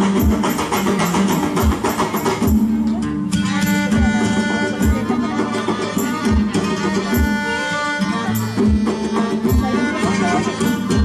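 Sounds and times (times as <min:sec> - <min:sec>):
folk ensemble melody: 0:00.0 - 0:11.0
low drum beat: 0:00.0 - 0:11.0.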